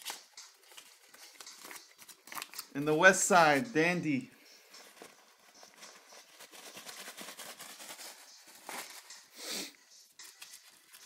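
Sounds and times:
paper crinkling and rustling: 0.0 - 2.8, 4.8 - 9.1.

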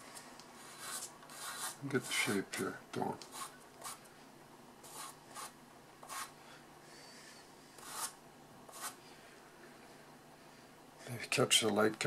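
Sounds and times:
pastel scratching on paper: 0.6 - 2.4, 3.3 - 4.0, 4.8 - 6.3, 7.8 - 9.0.

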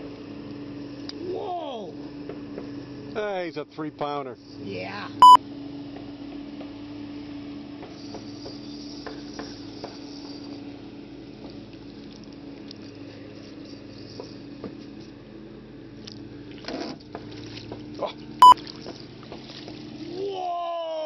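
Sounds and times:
steady low hum: 5.2 - 5.4
water sloshing and splashing: 16.0 - 20.2.

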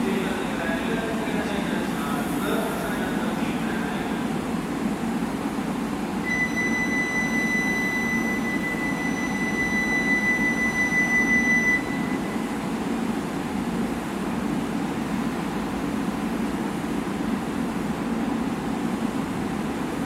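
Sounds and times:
train humming: 0.0 - 6.4.

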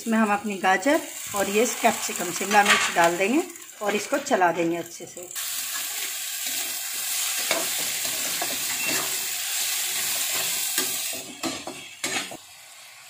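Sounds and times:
vegetables sizzling in hot oil: 0.0 - 13.0
metal spatula scraping pan: 9.8 - 12.4.

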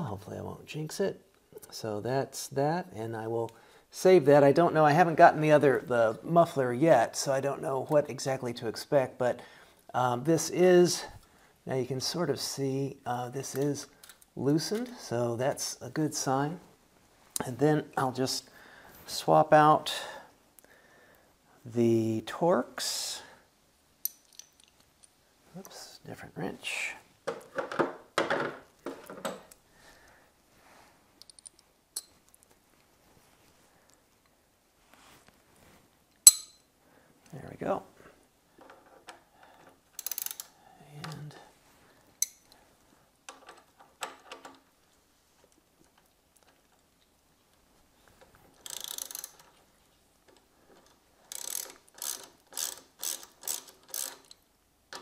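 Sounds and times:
sharp metal clink: 36.2 - 36.7
ratchet wrench clicking: 40.0 - 40.5, 48.6 - 49.4, 51.3 - 54.4.

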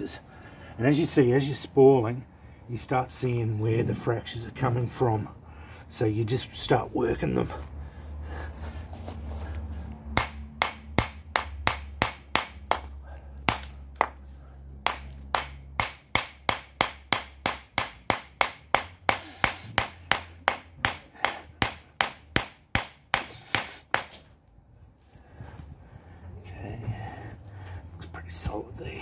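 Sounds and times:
hammer striking rock: 10.2 - 14.2, 14.8 - 24.2.

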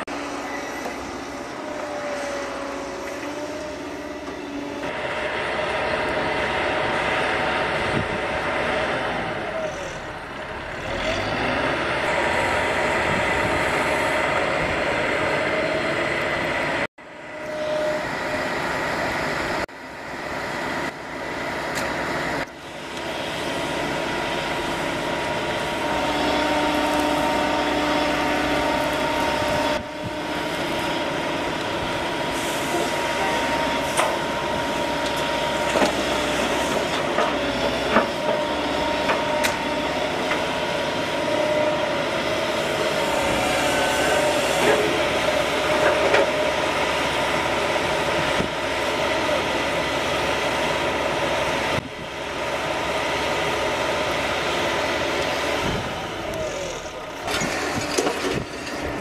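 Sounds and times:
diesel engine under load: 0.0 - 59.0
hydraulic whine: 0.0 - 59.0
bucket and rubble clanks: 57.3 - 59.0.

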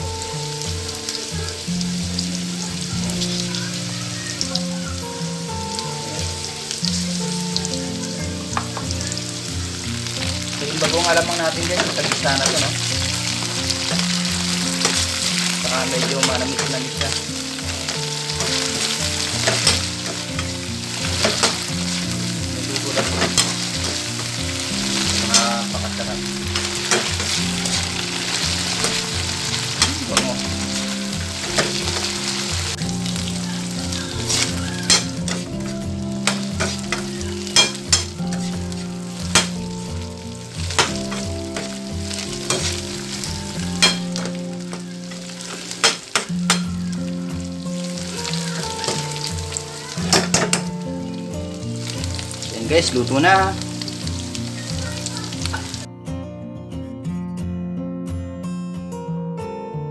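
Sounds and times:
food sizzling in a wok: 0.0 - 55.9
metal spatula scraping a pan: 10.0 - 39.8, 40.5 - 50.8.

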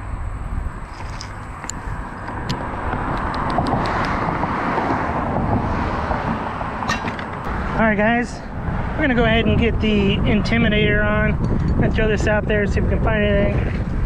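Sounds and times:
magnet clicking on concrete: 1.1 - 4.2
car driving past: 1.9 - 9.1.

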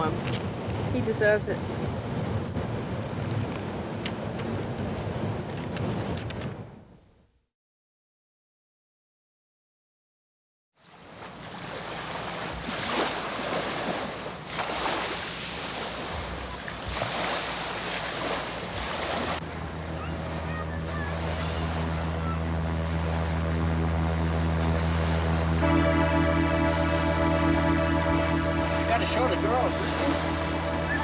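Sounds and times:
wind buffeting microphone: 0.0 - 6.8
water lapping: 10.8 - 27.6, 28.8 - 31.0
low music drone: 19.4 - 31.0.

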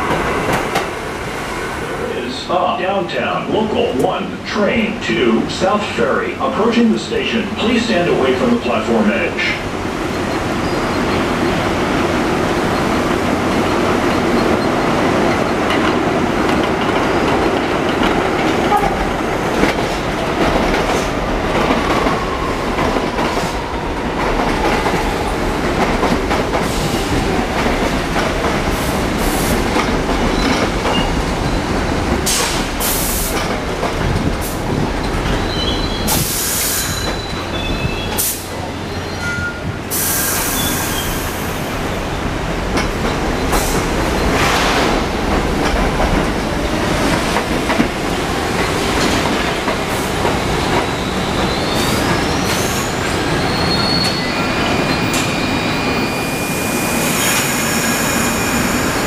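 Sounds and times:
subway train rumble: 0.0 - 59.0
air hissing: 36.1 - 37.0, 39.9 - 41.6.

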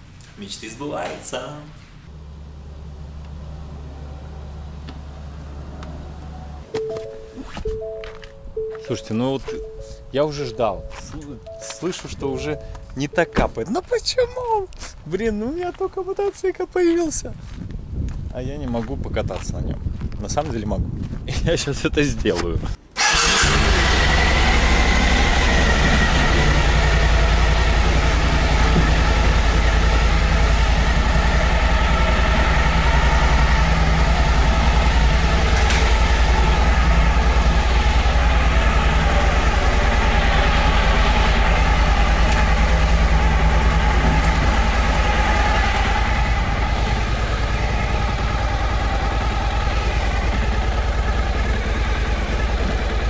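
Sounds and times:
motorcycle engine idling: 23.4 - 53.0.

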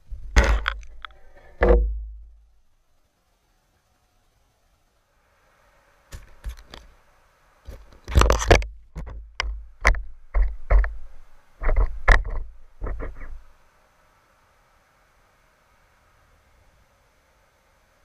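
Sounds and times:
sharp underwater knocks and clicks: 8.1 - 11.0, 11.6 - 13.4.

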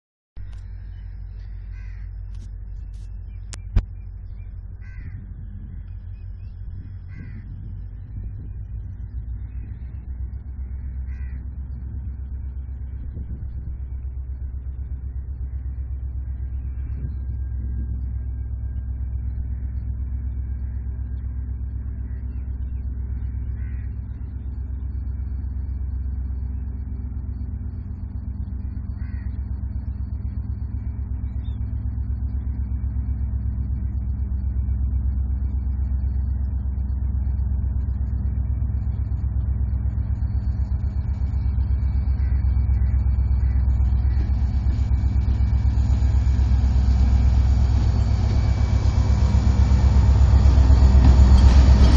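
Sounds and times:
low steady rumble: 0.4 - 51.9
crows cawing: 0.8 - 2.4, 4.8 - 5.9, 7.0 - 7.7, 10.6 - 11.6, 23.4 - 24.2, 28.9 - 29.5, 42.1 - 44.6.

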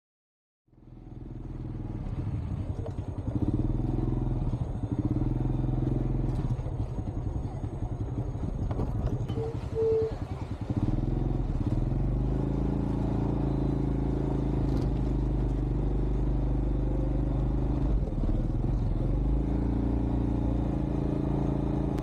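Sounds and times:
motorcycle engine running: 0.7 - 22.0
short beeps: 9.2 - 10.6, 13.2 - 14.1.

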